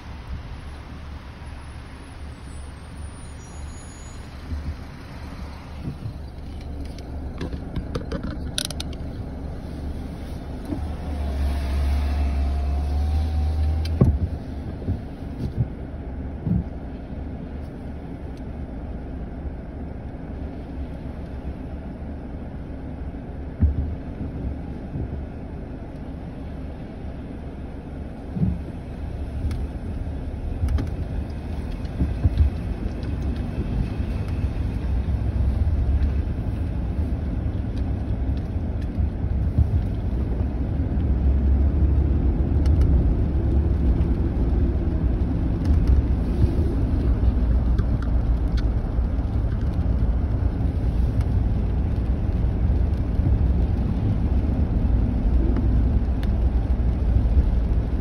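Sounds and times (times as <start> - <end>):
car engine and tyres rumbling: 0.0 - 58.0
knocks and clicks inside car: 5.8 - 9.2, 13.7 - 17.0, 23.5 - 25.4, 28.3 - 30.0, 30.6 - 35.0, 37.0 - 41.8.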